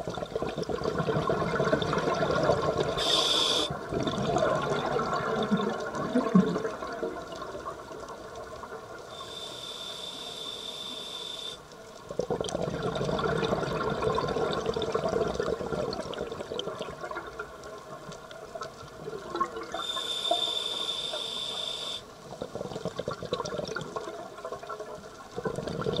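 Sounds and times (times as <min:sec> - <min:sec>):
exhaled air bubbling: 0:00.0 - 0:26.0
diver breathing through regulator: 0:03.0 - 0:03.7, 0:09.2 - 0:11.6, 0:19.8 - 0:22.1.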